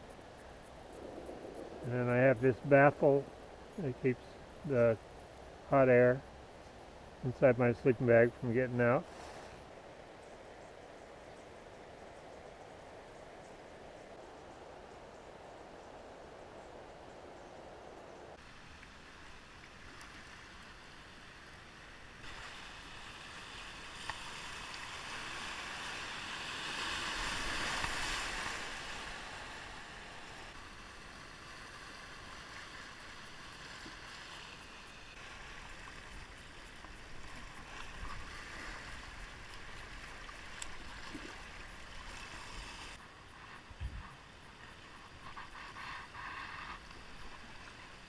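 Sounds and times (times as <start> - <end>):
river water rushing and splashing: 18.4 - 43.0.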